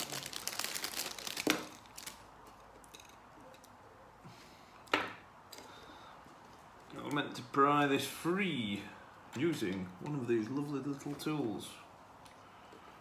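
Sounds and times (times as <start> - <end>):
plastic bag crinkling: 0.0 - 3.1
small handling noises: 4.8 - 7.6, 8.6 - 12.9.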